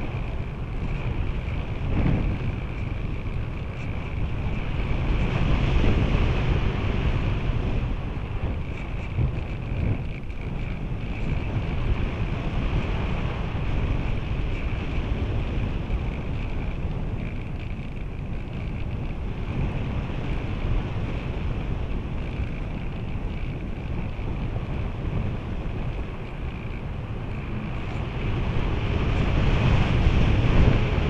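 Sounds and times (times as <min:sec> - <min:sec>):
wind buffeting microphone: 0:00.0 - 0:31.0.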